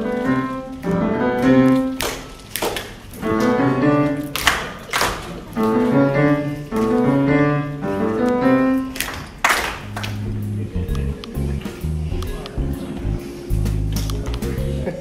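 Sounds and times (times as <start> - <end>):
slow keyboard chords: 0.0 - 2.1, 3.2 - 4.4, 5.5 - 9.0, 9.9 - 15.0.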